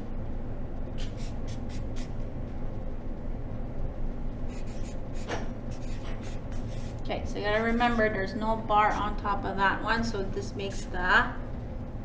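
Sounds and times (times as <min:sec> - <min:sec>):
low hum: 0:00.0 - 0:12.0
marker scratching on paper: 0:01.0 - 0:02.2, 0:04.5 - 0:07.0.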